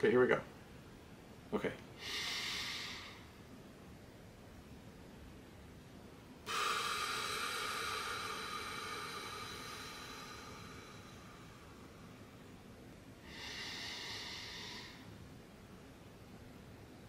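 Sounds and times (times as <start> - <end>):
person breathing slowly: 2.0 - 3.4, 6.4 - 12.6, 13.2 - 15.3.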